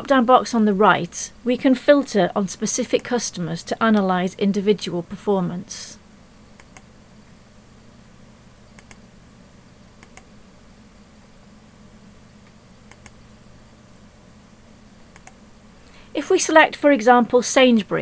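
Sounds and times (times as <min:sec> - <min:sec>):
low electrical hum and hiss: 0:00.0 - 0:18.0
computer mouse button clicking: 0:08.8 - 0:09.0, 0:10.0 - 0:10.3, 0:12.9 - 0:13.2, 0:15.1 - 0:15.4.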